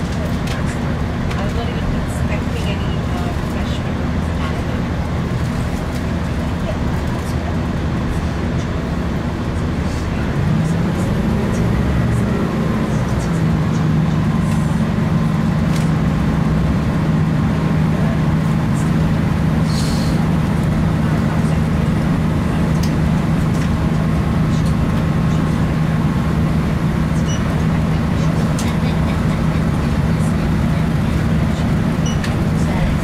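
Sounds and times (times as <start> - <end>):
diesel engine drone: 0.0 - 33.0
train wheels rumbling on track: 0.0 - 33.0.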